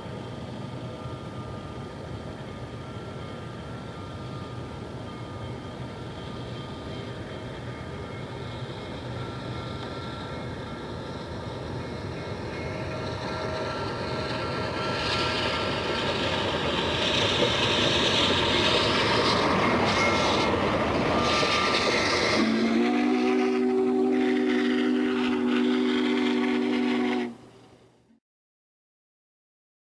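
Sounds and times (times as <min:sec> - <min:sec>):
steam train rumble and hiss: 0:00.0 - 0:28.1
steam whistle blowing: 0:18.8 - 0:27.6.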